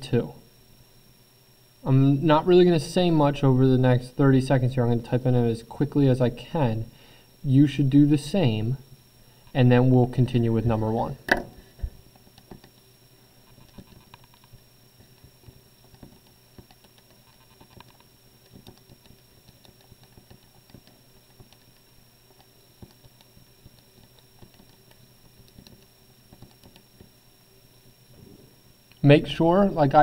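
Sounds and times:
calculator keys clicking: 15.9 - 26.8.

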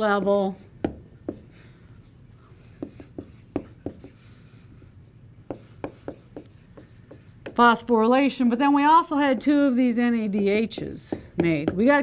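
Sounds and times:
writing taps and scratches on board: 2.8 - 4.2, 5.5 - 7.7, 10.7 - 12.0.

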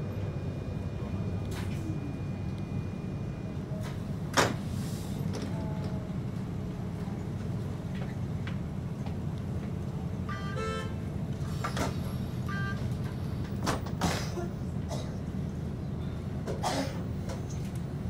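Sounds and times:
streetcar cabin hum: 0.0 - 18.0
fare card reader beeps: 12.5 - 12.9.

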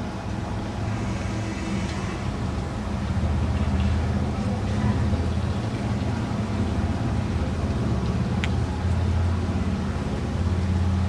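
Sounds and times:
low mechanical drone: 0.0 - 11.0.

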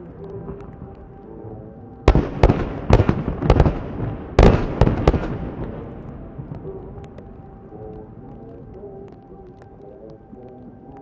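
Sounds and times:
fireworks bursting with sharp bangs: 2.1 - 7.5.

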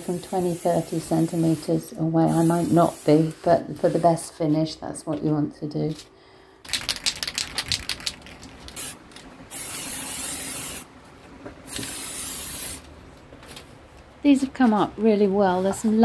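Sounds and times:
spray paint hissing: 0.1 - 4.1, 6.8 - 10.9, 11.7 - 12.9
aerosol can rattling: 6.7 - 10.8.

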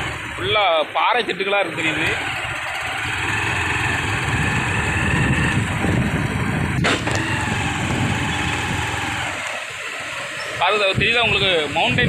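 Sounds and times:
motorbike engine running: 0.0 - 12.0.

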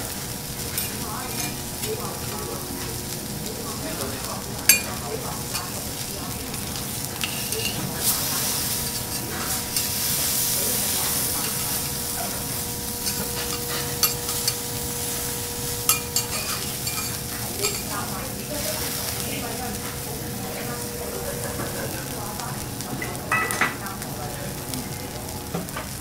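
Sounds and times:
food sizzling on a griddle: 0.0 - 26.0
metal spatulas clicking on iron: 4.7 - 5.8, 7.2 - 7.8, 13.0 - 14.7, 15.8 - 18.0.

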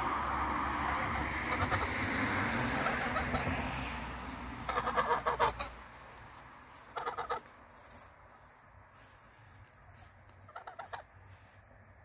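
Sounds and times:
geese calling: 0.9 - 7.6, 10.4 - 11.2.

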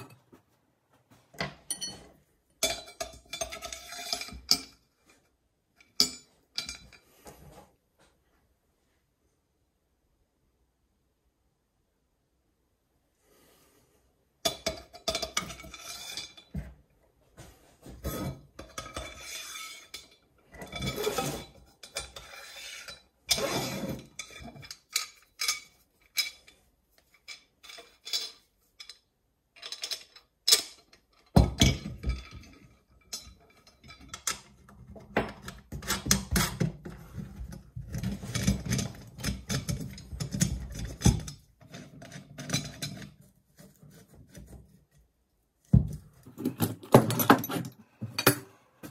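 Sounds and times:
metal bolts and washers clinking: 1.4 - 4.8, 5.8 - 7.0, 14.4 - 16.6, 18.6 - 43.3, 46.2 - 48.9.

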